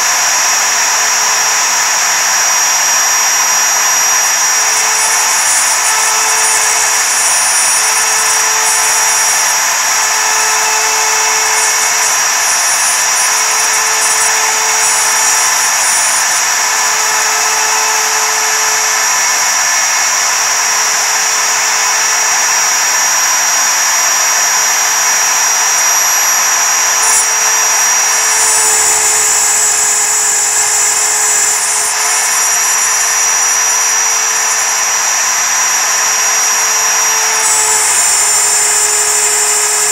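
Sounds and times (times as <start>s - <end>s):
router spindle high-pitched whine: 0.0s - 39.9s
hiss of metal cutting: 4.2s - 19.9s, 25.5s - 39.9s.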